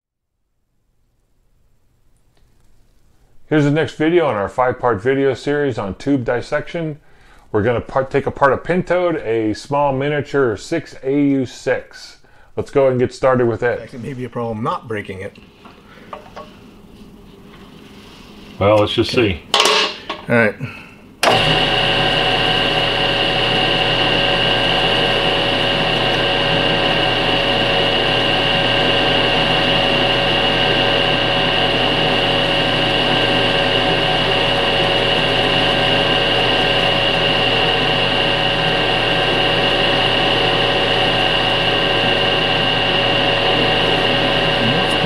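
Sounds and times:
metal lathe whining: 21.2s - 45.0s.

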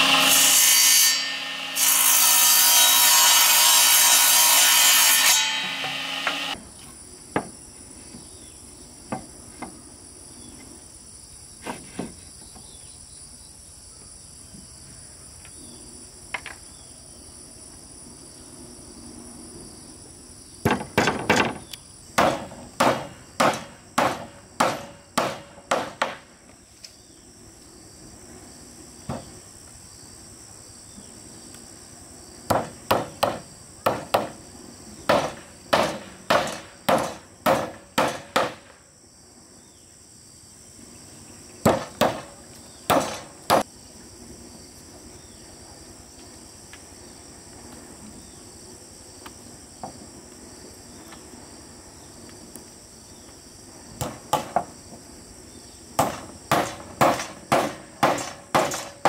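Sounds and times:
hammer blows on wooden planks: 0.0s - 6.6s, 20.6s - 26.5s, 32.5s - 34.4s, 35.0s - 38.8s, 41.6s - 43.7s, 54.0s - 55.0s, 56.0s - 59.0s
insects chirring: 6.5s - 59.0s.

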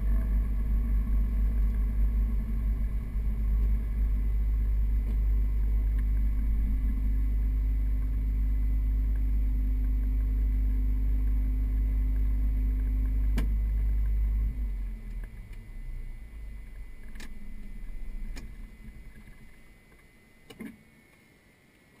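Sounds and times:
piston aircraft engine idling: 0.0s - 15.6s.

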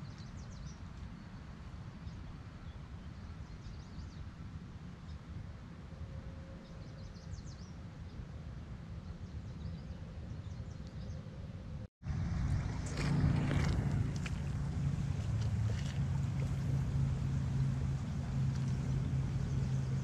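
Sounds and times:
low outdoor rumble: 8.4s - 20.0s
small songbirds twittering: 14.1s - 20.0s.

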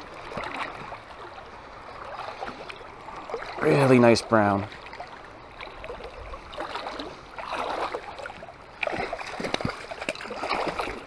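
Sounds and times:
creek rushing: 0.0s - 11.0s
fish splashing in water: 4.7s - 11.0s.

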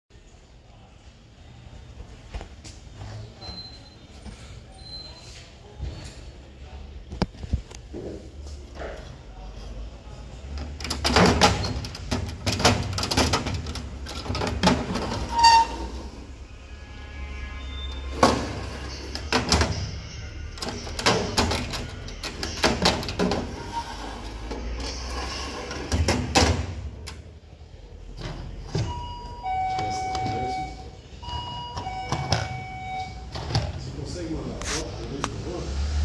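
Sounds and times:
metal drawer sliding and clattering: 10.6s - 16.1s, 18.1s - 19.8s, 20.6s - 27.2s.

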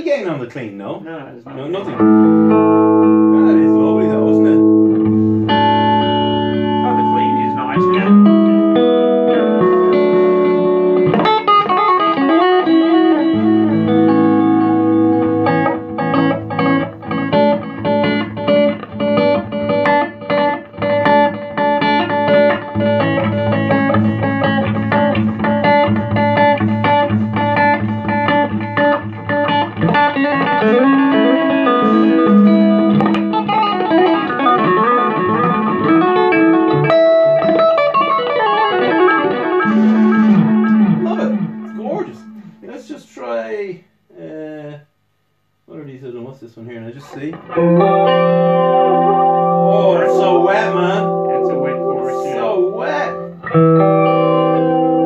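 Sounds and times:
clean electric guitar: 1.4s - 42.7s, 46.8s - 55.0s.

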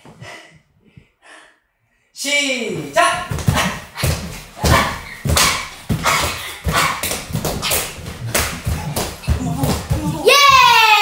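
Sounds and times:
exercise balls thumping on floor: 3.2s - 10.9s.

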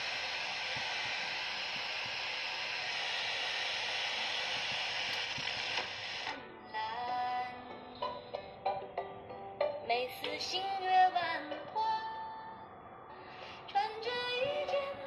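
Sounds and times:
radio static hiss: 0.0s - 6.4s.

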